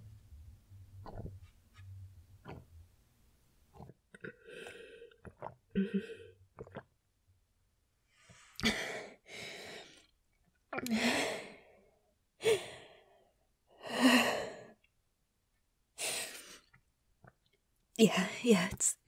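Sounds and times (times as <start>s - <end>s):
woman breathing heavily: 8.2s - 10.1s, 10.9s - 14.8s.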